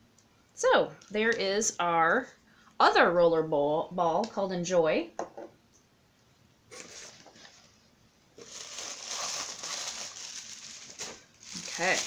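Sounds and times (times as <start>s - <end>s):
paper shred crinkling rustle: 8.4s - 12.0s.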